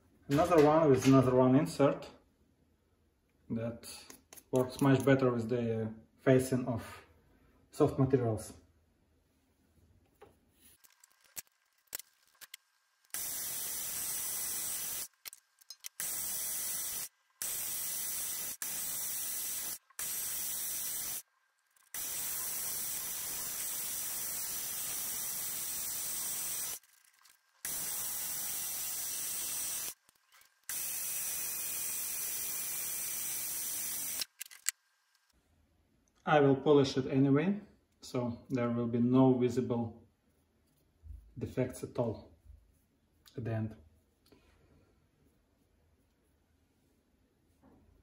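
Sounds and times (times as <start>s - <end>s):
wrench clicks: 15.0s - 16.1s.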